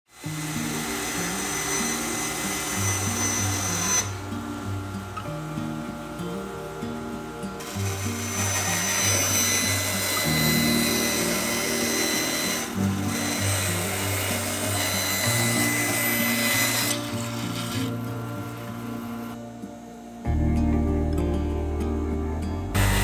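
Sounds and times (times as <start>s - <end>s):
bandsaw cutting wood: 0.1s - 4.4s, 7.6s - 19.4s, 22.8s - 23.0s
soft background music: 0.1s - 23.0s.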